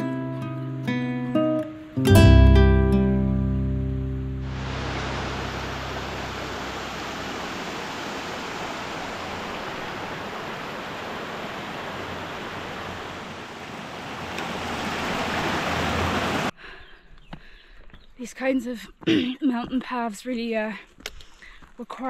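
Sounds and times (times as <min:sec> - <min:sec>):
stream rushing over rocks: 0:04.4 - 0:16.5.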